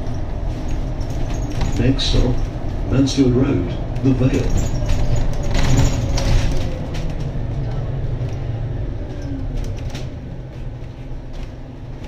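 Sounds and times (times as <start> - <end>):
rattles: 0.0 - 2.8, 3.9 - 8.5
bus engine and road rumble: 0.0 - 12.0.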